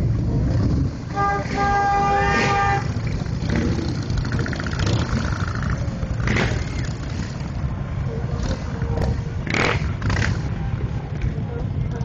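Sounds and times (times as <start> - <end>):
motorcycles rumbling: 0.0 - 12.0
motorcycle horn honking: 1.1 - 3.0.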